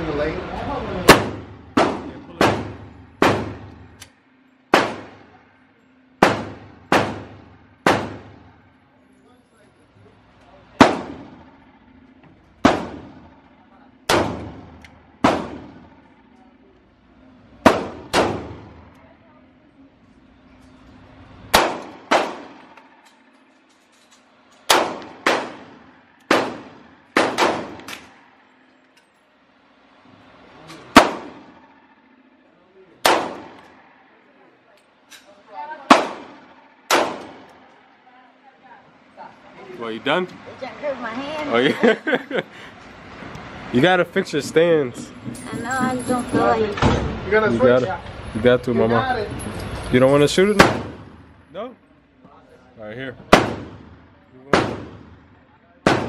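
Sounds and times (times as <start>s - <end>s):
pistol shots: 1.1s - 4.0s, 4.7s - 5.3s, 6.2s - 8.5s, 10.8s - 11.5s, 12.6s - 13.4s, 14.1s - 16.0s, 17.6s - 18.8s, 21.5s - 23.0s, 24.7s - 28.2s, 30.9s - 31.7s, 33.0s - 33.9s, 35.9s - 37.6s, 50.6s - 51.2s, 53.3s - 55.2s.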